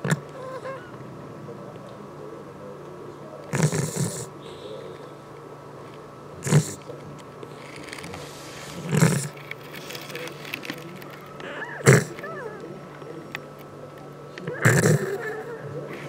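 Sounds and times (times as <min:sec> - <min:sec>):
cat snoring: 0:03.5 - 0:04.3, 0:06.4 - 0:06.8, 0:08.8 - 0:09.3, 0:11.6 - 0:12.5, 0:14.6 - 0:15.4.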